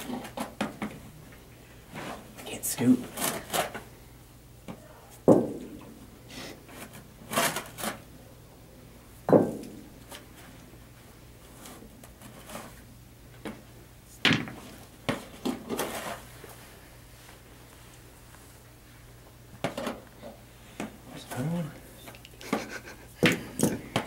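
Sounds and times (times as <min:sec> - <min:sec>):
sharp knocks on plastic bucket: 0:09.3 - 0:09.8.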